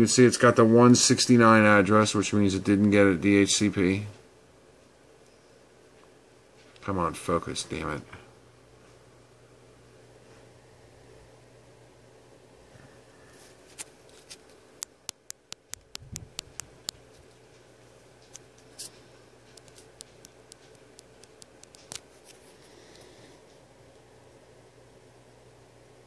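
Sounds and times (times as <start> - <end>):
faint low hum: 0.0 - 26.0
sharp small clicks and taps: 14.8 - 22.1.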